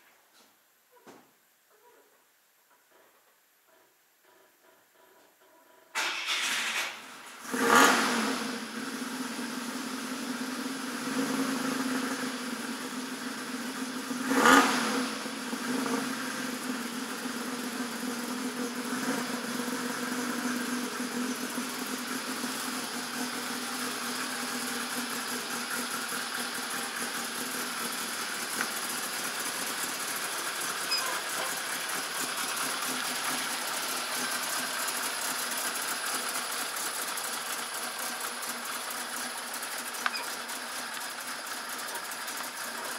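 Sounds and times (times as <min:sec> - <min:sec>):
short loud engine burst: 0:06.0 - 0:08.6
car engine running: 0:07.0 - 0:42.9.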